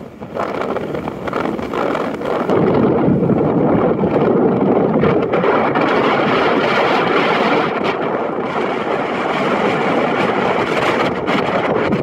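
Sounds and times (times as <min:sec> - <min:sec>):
wind on microphone: 0:00.0 - 0:12.0.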